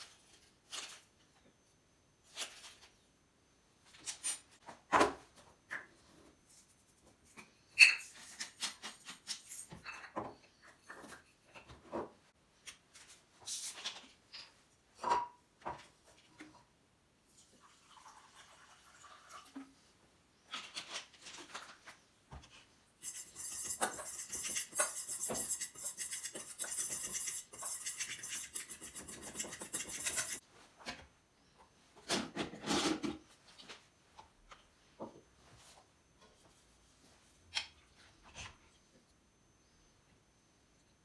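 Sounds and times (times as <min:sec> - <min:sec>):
flour stirred in metal bowl: 0:23.0 - 0:30.4.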